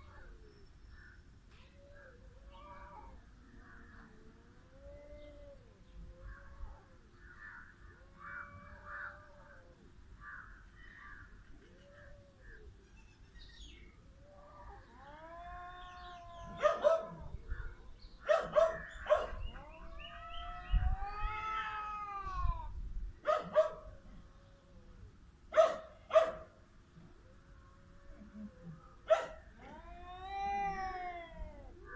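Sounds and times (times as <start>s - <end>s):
cats yowling: 1.7s - 3.2s, 3.8s - 7.0s, 8.0s - 9.8s, 14.2s - 17.7s, 18.4s - 22.7s, 27.8s - 31.9s.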